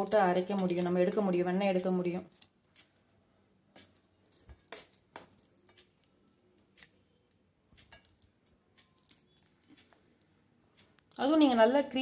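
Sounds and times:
soft squelches of cream: 8.0s - 10.4s.

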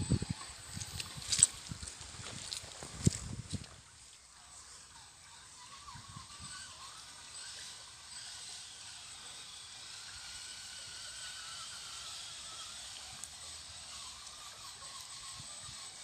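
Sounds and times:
electric motor whine: 0.0s - 16.0s
stream running over stones: 0.5s - 4.3s, 7.0s - 16.0s.

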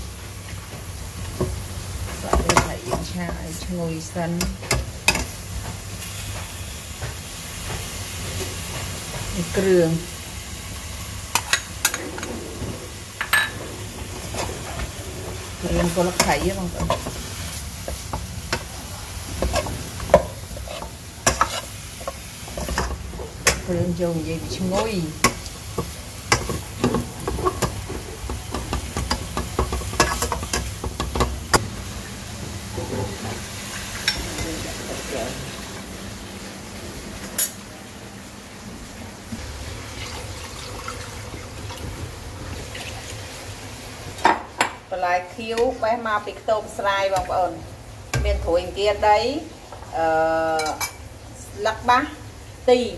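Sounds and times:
light frying sizzle: 0.0s - 52.9s
spatula scraping and knocking pan: 11.4s - 31.6s.

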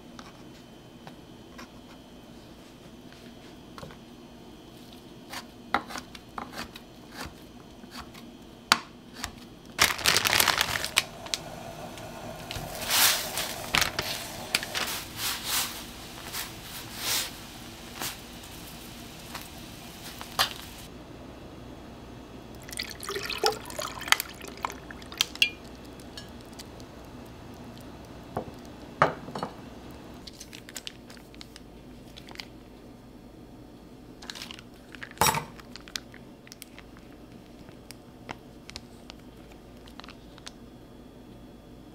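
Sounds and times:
splashing water: 22.7s - 25.6s.

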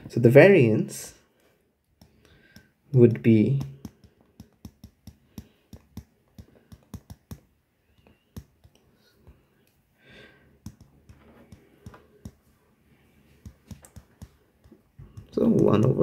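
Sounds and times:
stylus tapping on glass screen: 2.0s - 8.8s, 10.6s - 12.4s, 13.4s - 15.4s.

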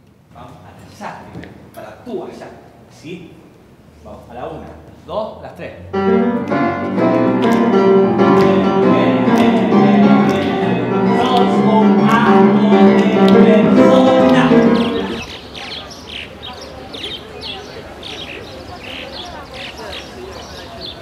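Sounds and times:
music with a steady beat: 6.1s - 15.0s.

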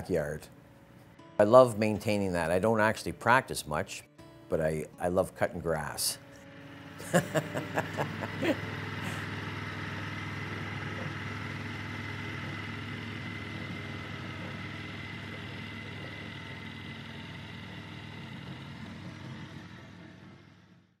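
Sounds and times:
lawn mower engine running: 5.8s - 21.0s.

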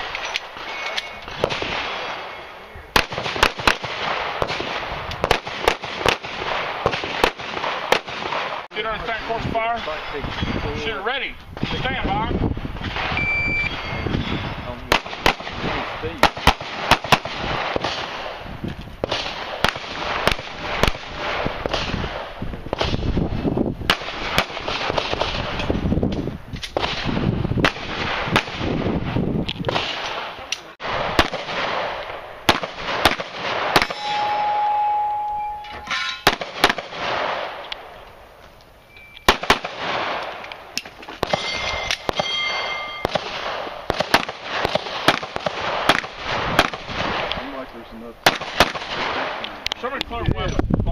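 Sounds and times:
electronic shot timer beep: 13.2s - 14.2s.

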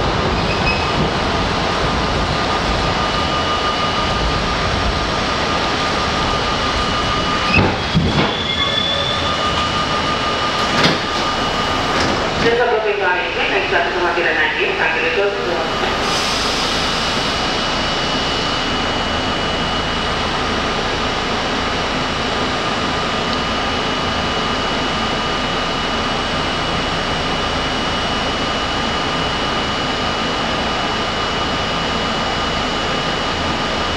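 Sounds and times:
subway car equipment whirring: 0.0s - 33.9s
high-pitched whines: 2.2s - 12.6s.

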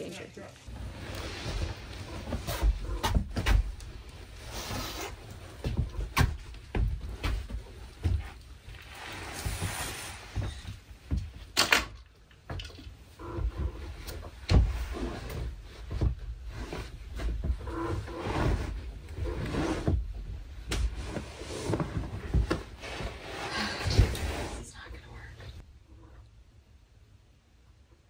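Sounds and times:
scrapes and rustles: 0.0s - 11.4s, 13.1s - 24.9s
mattress dragged over wooden floor: 0.7s - 3.3s, 4.2s - 6.0s, 8.1s - 11.0s, 13.2s - 24.7s.

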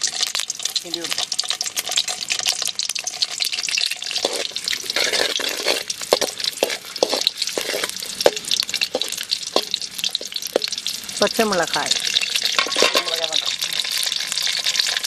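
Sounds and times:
garlic sizzling in oil: 0.0s - 15.0s
metal spoon knocking on pan: 6.1s - 10.8s, 12.6s - 13.4s.

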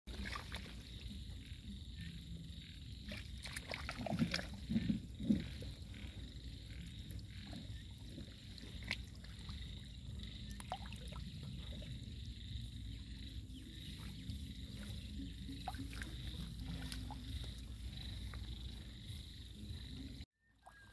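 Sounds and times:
water lapping and swirling: 0.1s - 1.4s, 3.0s - 19.2s.

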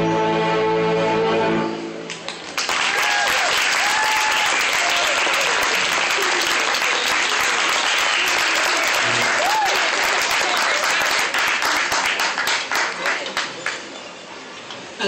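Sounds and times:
string orchestra chord: 0.0s - 2.1s
audience applause: 2.1s - 13.9s
audience cheering: 2.6s - 13.7s.

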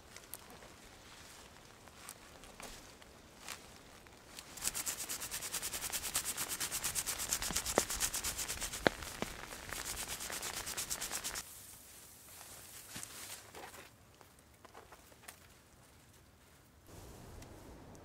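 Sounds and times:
dry thatch rubbed and scraped: 4.4s - 13.7s.

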